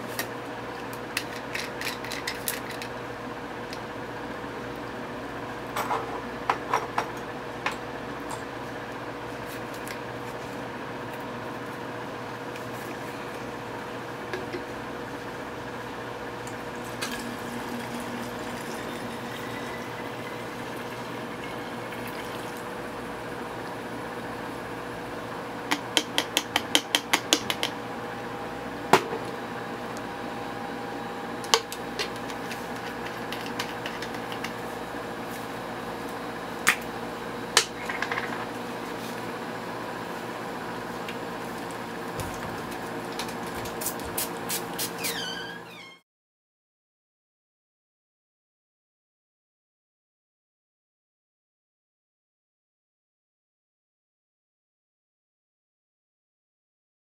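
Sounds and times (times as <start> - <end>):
steady background hum: 0.0 - 46.0
liquid pouring through a funnel: 17.1 - 22.9.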